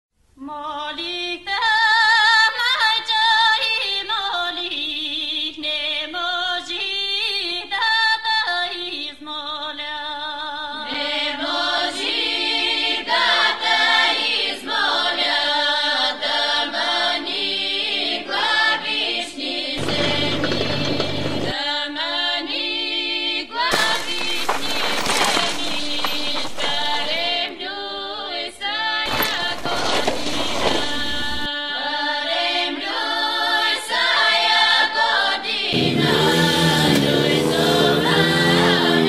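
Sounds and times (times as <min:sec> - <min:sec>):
choir singing: 0:10.8 - 0:24.8, 0:25.7 - 0:39.0
voices singing: 0:10.8 - 0:39.0.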